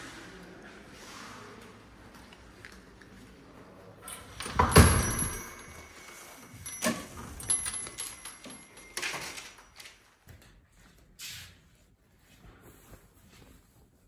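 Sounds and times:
small brass bells jingling: 0:04.6 - 0:10.0
scuffing noise: 0:10.4 - 0:14.0.

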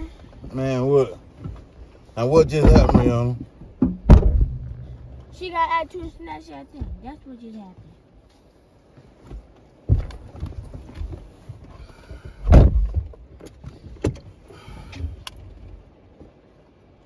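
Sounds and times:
thumps and shuffling in car: 0:00.0 - 0:16.6
small knocks: 0:02.4 - 0:05.4, 0:09.2 - 0:14.3
car door shutting: 0:02.5 - 0:05.2, 0:12.4 - 0:13.1.

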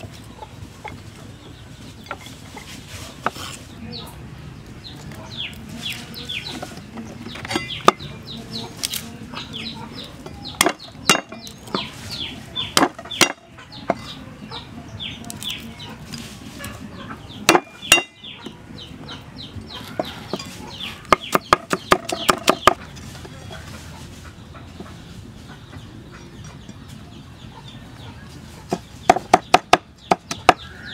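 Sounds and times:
chickens chirping: 0:00.0 - 0:30.9
cleaver chopping on wooden block: 0:10.2 - 0:11.9, 0:12.7 - 0:14.0, 0:17.5 - 0:18.2, 0:21.0 - 0:22.8, 0:28.7 - 0:30.7.

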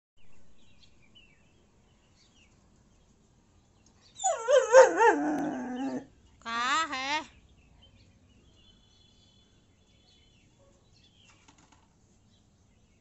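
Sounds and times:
dog whining howl: 0:04.2 - 0:06.1.

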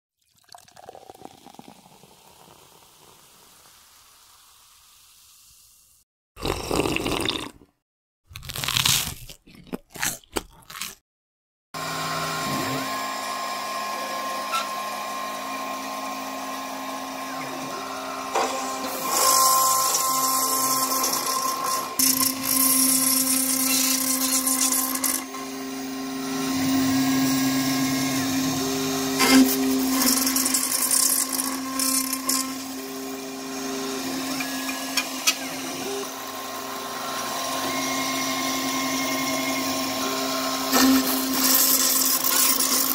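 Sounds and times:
router spindle whine with cutting hiss: 0:11.8 - 0:42.9
stepper motor tones: 0:11.8 - 0:42.9.

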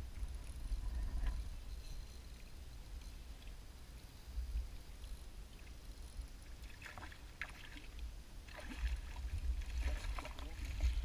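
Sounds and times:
wind rumble on microphone: 0:00.0 - 0:06.5, 0:08.0 - 0:11.0
water splashing beside boat: 0:05.4 - 0:11.0.

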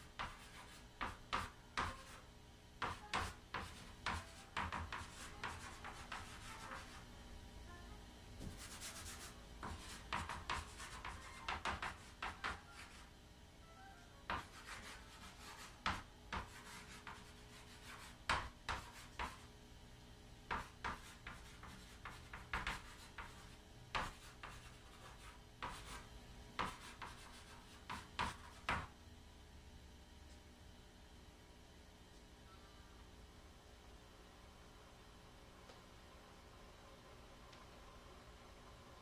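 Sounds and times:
chalk scratching on chalkboard: 0:00.0 - 0:07.1, 0:08.4 - 0:13.1, 0:14.3 - 0:19.5, 0:20.5 - 0:26.0, 0:26.6 - 0:28.9.

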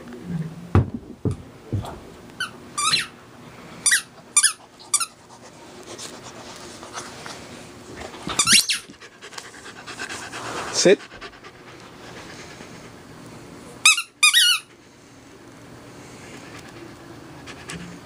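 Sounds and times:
dull thumps: 0:00.7 - 0:02.1
puppy whining: 0:08.1 - 0:10.4.

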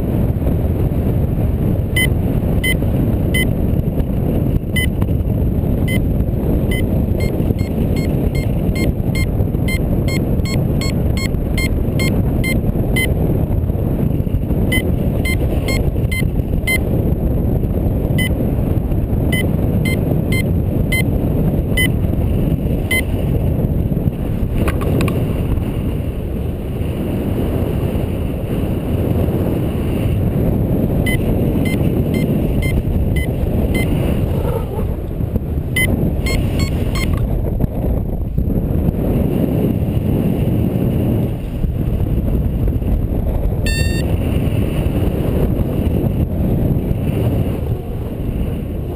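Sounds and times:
airflow over microphone: 0:00.0 - 0:48.9
variometer short high beeps: 0:02.0 - 0:03.5, 0:04.7 - 0:05.0, 0:05.9 - 0:06.1, 0:06.7 - 0:13.2, 0:14.7 - 0:16.8, 0:18.2 - 0:18.4, 0:19.3 - 0:21.1, 0:21.7 - 0:22.0, 0:22.9 - 0:23.1, 0:31.0 - 0:34.1, 0:35.8 - 0:37.2, 0:43.7 - 0:44.1.

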